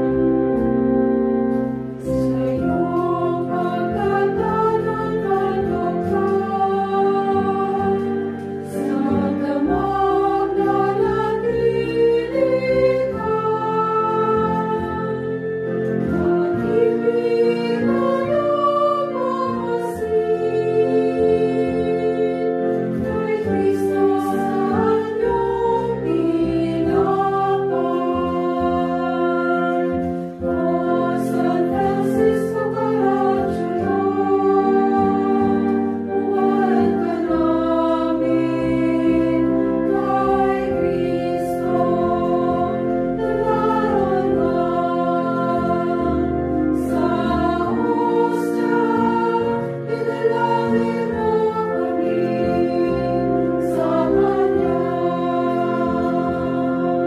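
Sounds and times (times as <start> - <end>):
women's choir singing a hymn: 0.0 - 57.0.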